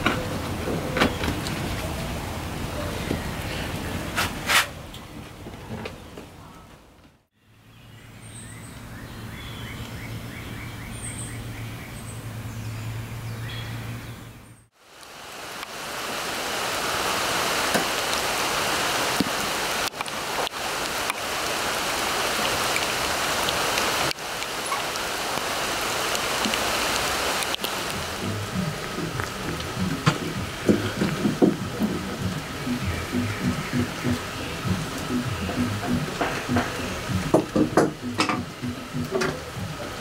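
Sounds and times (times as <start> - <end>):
steady hiss like rain: 0.0 - 6.4, 7.4 - 40.0
low steady hum: 27.6 - 40.0.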